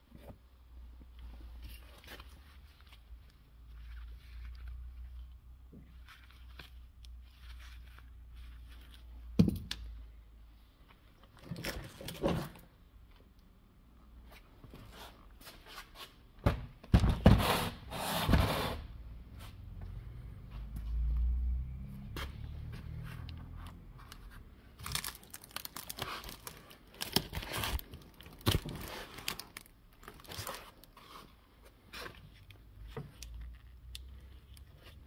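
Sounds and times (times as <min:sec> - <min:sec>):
plastic trim scraping and tearing: 0:23.2 - 0:35.0.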